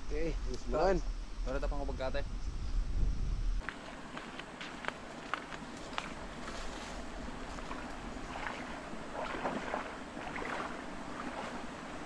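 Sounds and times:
footsteps wading through water: 0:03.6 - 0:12.0.

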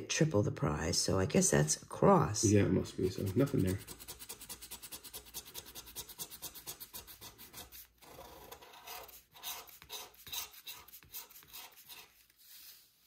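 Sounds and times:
lottery ticket being scratched: 0:03.1 - 0:12.3.

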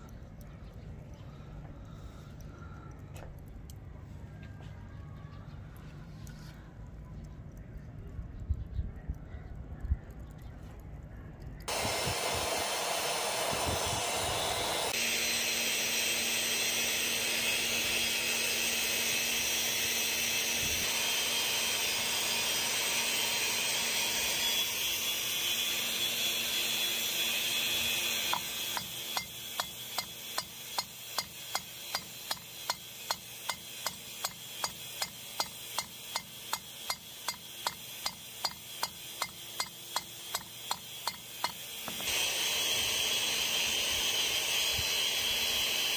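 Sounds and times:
hammer striking steel nail: 0:28.3 - 0:42.1.

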